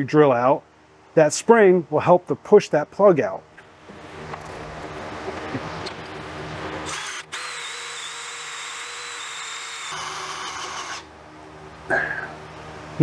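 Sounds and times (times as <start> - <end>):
cordless drill whining: 6.8 - 11.0
hole saw cutting wood: 6.8 - 11.1.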